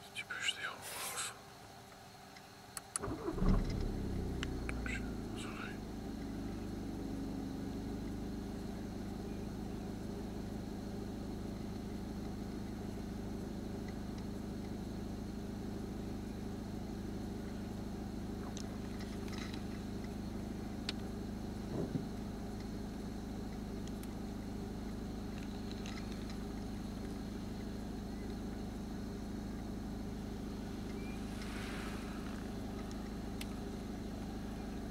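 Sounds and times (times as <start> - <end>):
car engine idling: 3.0 - 34.9.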